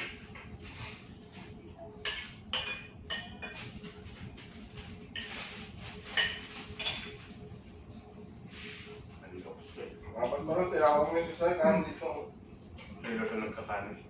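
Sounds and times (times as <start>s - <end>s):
cutlery and dishes clinking: 2.0s - 4.0s, 5.1s - 7.2s.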